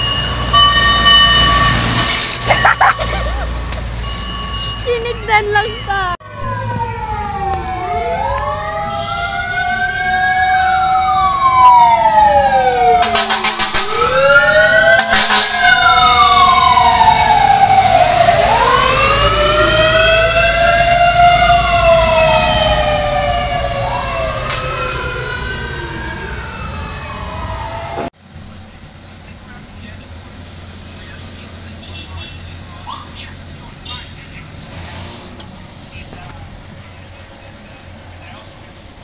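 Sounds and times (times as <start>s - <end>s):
fire truck sirens wailing: 0.0s - 28.2s
rapid siren pulses: 0.6s - 28.1s.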